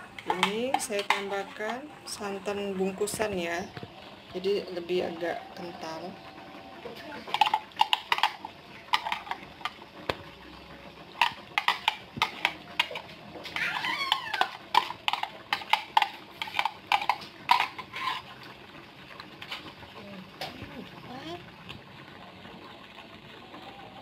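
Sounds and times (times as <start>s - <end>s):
spatula scraping metal pan: 11.2s - 18.4s
wavering high-pitched cry: 13.5s - 14.6s.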